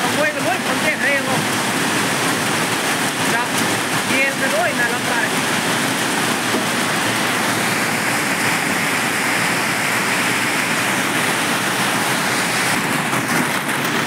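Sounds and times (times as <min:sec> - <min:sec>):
hailstones pelting tin roofs: 0:00.0 - 0:14.0
strong wind: 0:00.0 - 0:14.0.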